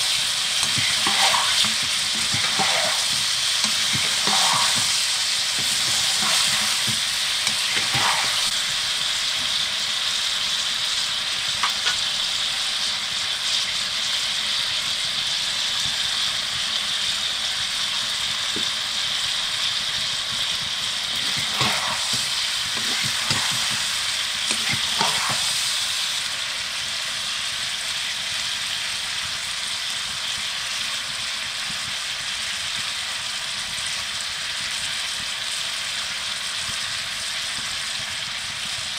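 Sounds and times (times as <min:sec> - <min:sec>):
chicken sizzling in wok: 0:00.0 - 0:38.9
wooden spatula scraping pan: 0:00.6 - 0:08.5, 0:21.1 - 0:25.6.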